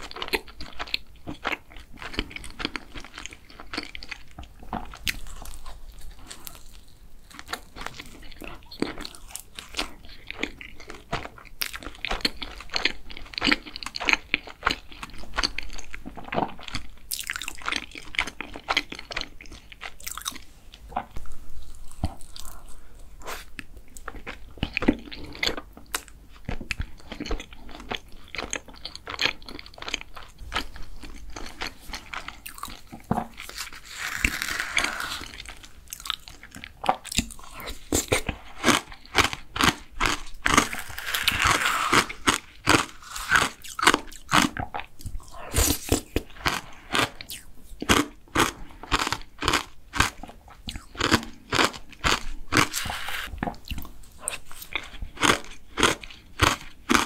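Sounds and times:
biting and chewing: 0:23.5 - 0:57.0.

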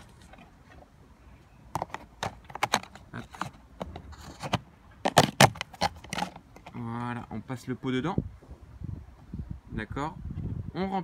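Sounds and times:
plastic pot clicking and knocking: 0:01.7 - 0:06.8
scraping rustle: 0:01.8 - 0:06.8.

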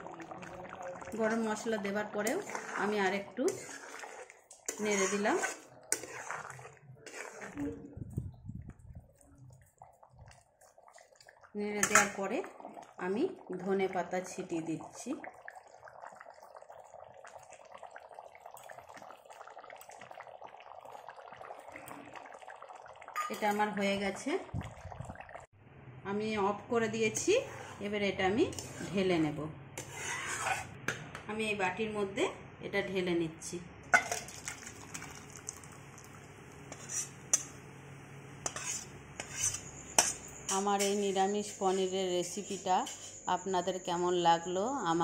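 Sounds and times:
curry simmering with small pops: 0:00.0 - 0:25.5, 0:33.9 - 0:37.7
metal spatula scraping pan: 0:02.2 - 0:07.8, 0:27.1 - 0:29.1, 0:29.8 - 0:30.8, 0:36.7 - 0:37.5, 0:38.4 - 0:43.3.

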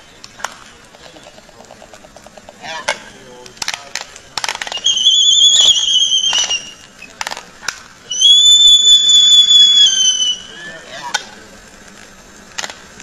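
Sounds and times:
long high whistled notes: 0:04.7 - 0:06.9, 0:08.0 - 0:10.9.

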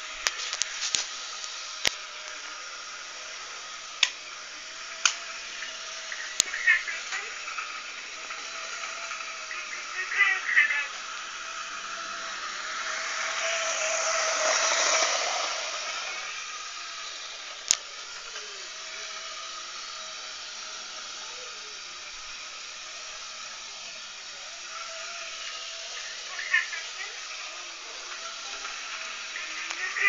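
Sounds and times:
model train motor whirring: 0:00.0 - 0:30.0
sharp click: 0:04.0 - 0:04.2.

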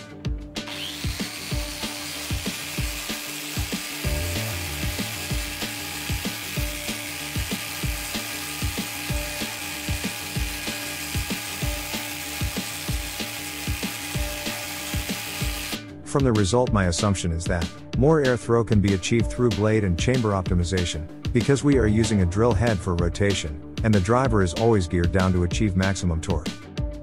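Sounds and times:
electric drill motor whir: 0:00.6 - 0:15.8.

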